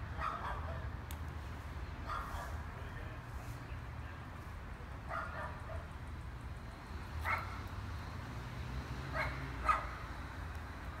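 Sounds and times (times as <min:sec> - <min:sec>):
dog barking: 0:00.2 - 0:00.8, 0:02.1 - 0:02.6, 0:05.1 - 0:05.9, 0:07.2 - 0:07.6, 0:09.1 - 0:10.0.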